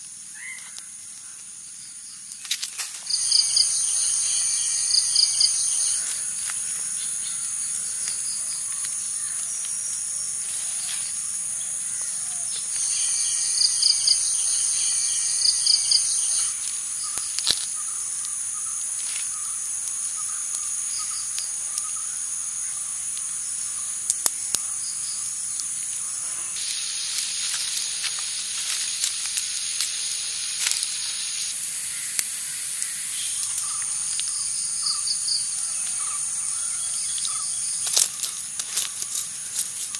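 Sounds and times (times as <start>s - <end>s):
insects droning: 0.0s - 39.9s
broad hiss: 2.2s - 24.1s, 24.8s - 39.9s
bird chirping: 32.8s - 38.4s.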